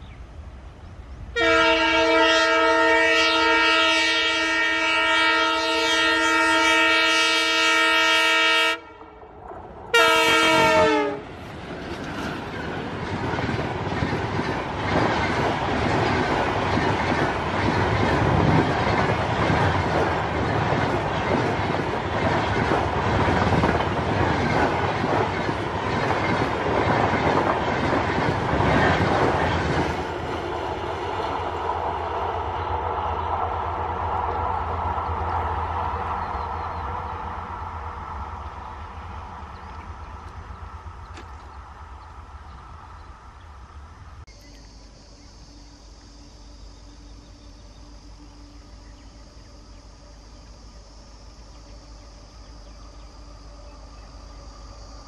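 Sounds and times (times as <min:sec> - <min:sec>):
train rumble: 0:00.0 - 0:55.0
locomotive horn blasts: 0:01.3 - 0:09.2, 0:09.9 - 0:11.3.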